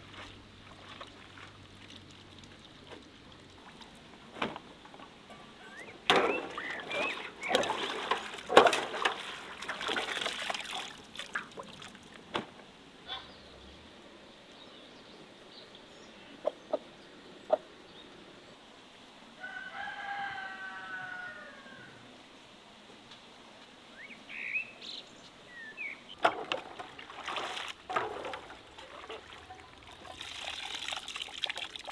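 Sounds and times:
rooster crowing: 19.4s - 22.1s.

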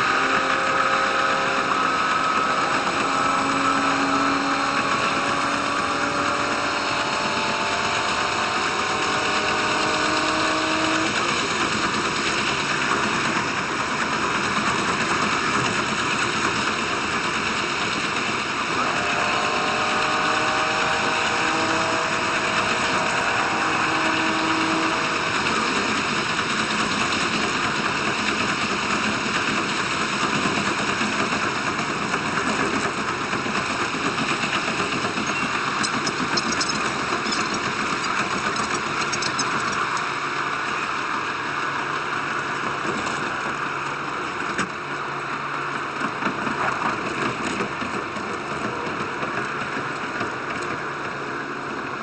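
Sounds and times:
diesel railcar engine drone: 0.0s - 52.0s
train wheels rolling on rails: 0.0s - 52.0s.

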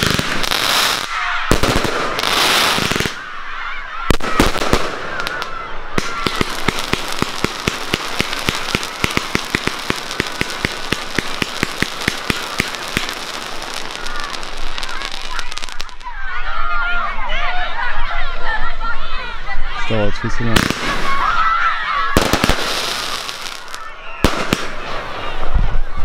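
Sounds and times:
crackling sparks: 0.0s - 3.3s, 4.1s - 16.0s
firework shell crackling: 0.0s - 3.3s, 4.1s - 16.1s, 22.1s - 25.8s
rapid firework cracks: 0.0s - 3.3s, 4.1s - 16.1s, 20.6s - 21.4s, 22.1s - 25.5s
firework bangs: 0.0s - 3.4s, 4.0s - 16.0s, 20.5s - 25.9s.

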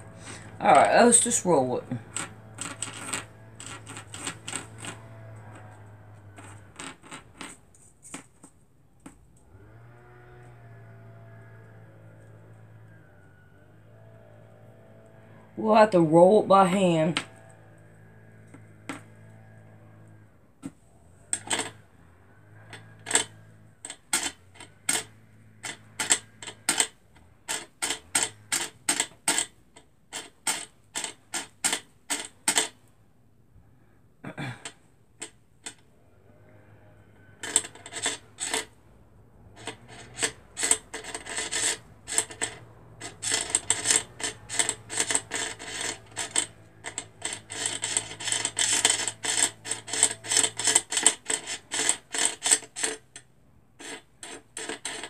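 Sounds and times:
rubbing and ticking: 0.0s - 9.5s, 22.7s - 32.9s, 37.3s - 38.8s, 39.5s - 55.0s
bobbin winding clicks: 39.6s - 53.2s.

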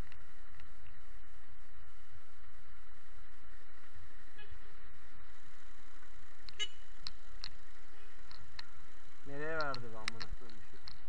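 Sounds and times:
traffic engines rumbling: 0.0s - 11.0s
car horn toot: 6.6s - 6.9s.

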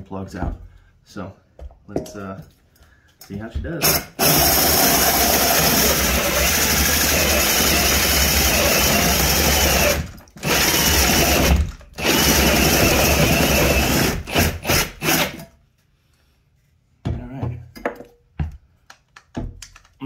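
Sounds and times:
power drill with hole saw cutting wood: 3.8s - 15.4s.

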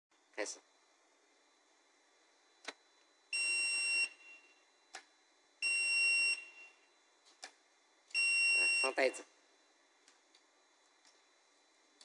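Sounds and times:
electronic alarm beeps: 3.3s - 4.6s, 5.6s - 6.9s, 8.1s - 9.2s.

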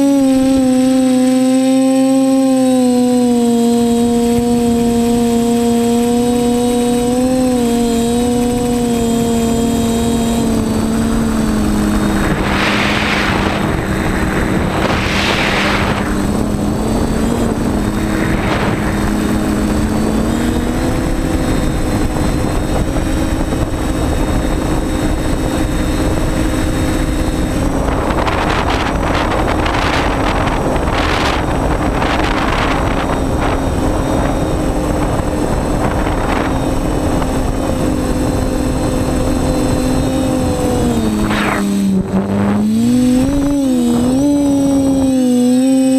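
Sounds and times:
drone propellers whining: 0.0s - 45.9s
wind rushing over microphone: 0.0s - 45.9s.

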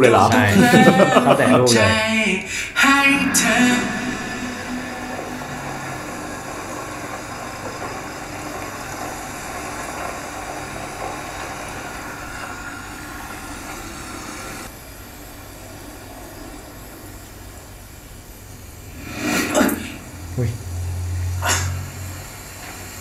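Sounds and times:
car engine running: 2.8s - 14.7s.

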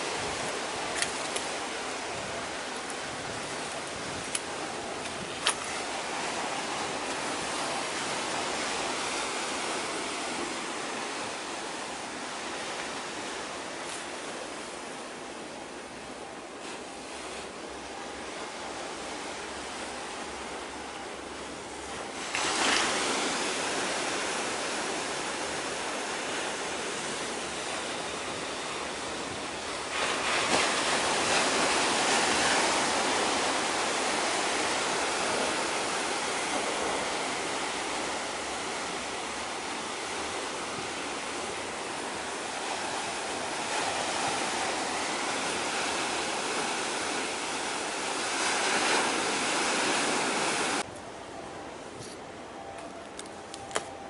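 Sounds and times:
waves washing on shore: 0.0s - 54.0s.

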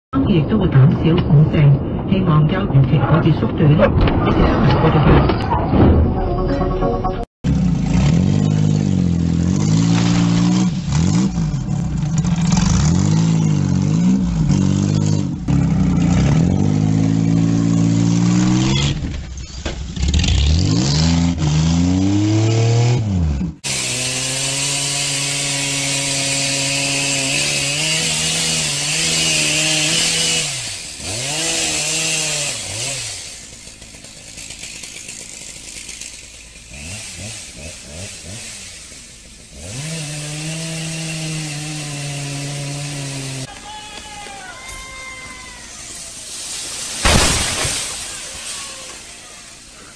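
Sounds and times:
car engine revving: 7.5s - 19.2s, 19.8s - 33.5s
wheels spinning in dirt: 7.5s - 22.5s, 32.8s - 39.6s, 43.4s - 49.9s.

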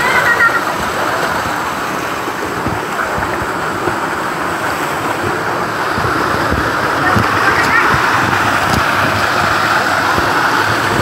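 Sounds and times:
waterfall splashing over rocks: 0.0s - 11.0s
low thumps: 2.3s - 9.4s.

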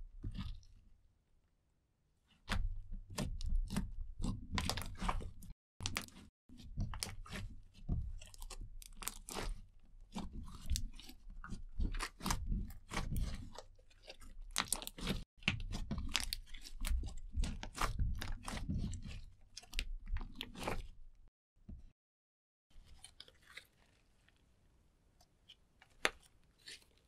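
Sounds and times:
slime squelching with clicks and pops: 0.2s - 0.8s, 2.4s - 21.1s, 25.2s - 27.0s.

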